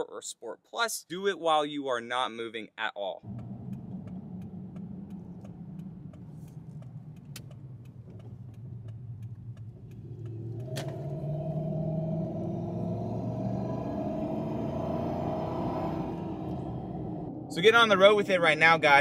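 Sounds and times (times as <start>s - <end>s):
car engine rumbling: 3.2s - 19.0s
faint rapid ticking: 3.3s - 10.7s.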